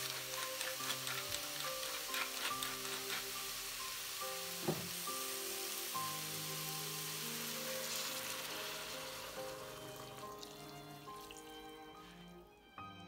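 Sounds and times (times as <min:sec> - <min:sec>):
broth splashing and sizzling: 0:00.0 - 0:11.6
soft background music: 0:00.0 - 0:13.0
thump: 0:04.6 - 0:05.0.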